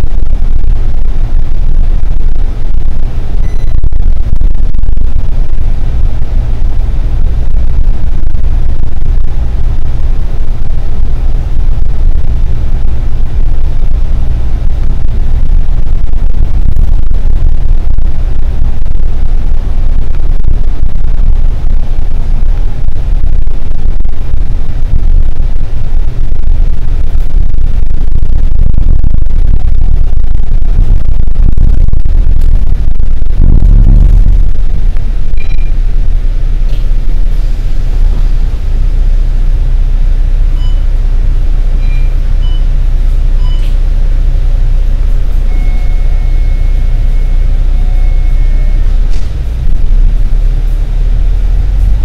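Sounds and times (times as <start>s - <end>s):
steady high tone: 0.0s - 10.1s, 27.5s - 39.4s, 45.4s - 52.0s
bus engine and road rumble: 0.0s - 52.0s
faint short beeps: 3.4s - 3.9s, 35.4s - 35.8s, 40.6s - 40.9s, 41.8s - 42.7s, 43.4s - 43.8s, 45.5s - 48.9s.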